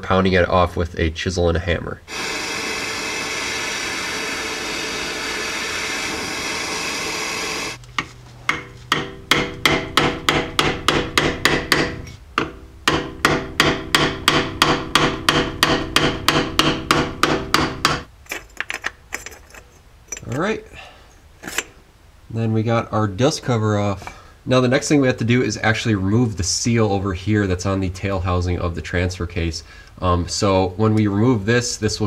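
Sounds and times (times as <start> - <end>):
gas torch hissing: 2.1 - 7.8
hammer striking chisel on metal: 8.5 - 18.1.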